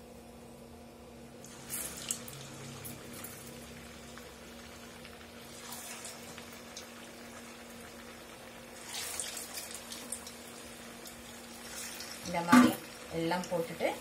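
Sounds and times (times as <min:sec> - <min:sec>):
hot oil sizzling and bubbling: 0:01.4 - 0:14.0
oil crackling and spitting: 0:04.0 - 0:12.3.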